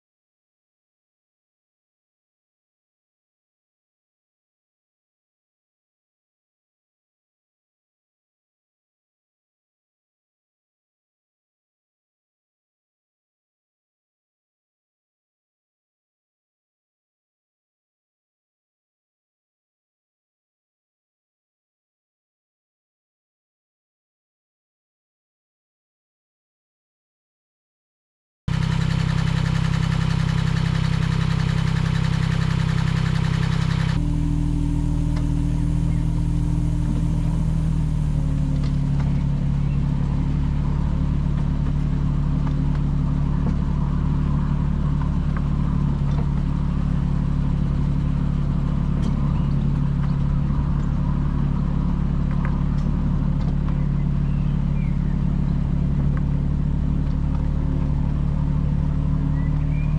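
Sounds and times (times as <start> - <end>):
small diesel engine running: 28.5 - 59.9.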